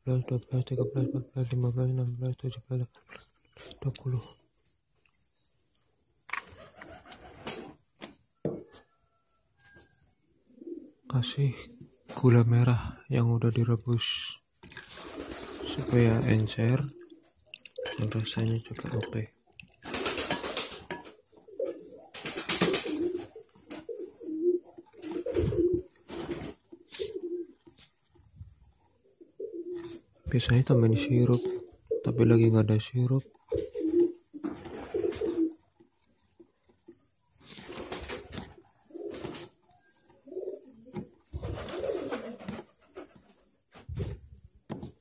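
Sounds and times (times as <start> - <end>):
dove cooing: 10.5 - 11.1, 19.8 - 27.7, 29.1 - 30.1, 33.4 - 35.7, 40.1 - 43.1
syrup pouring into a bowl: 17.4 - 19.8.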